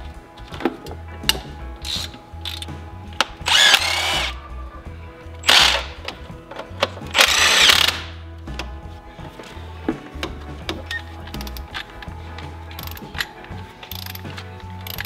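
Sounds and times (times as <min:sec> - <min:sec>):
power tool motor whine: 0:03.4 - 0:04.3, 0:07.2 - 0:08.0.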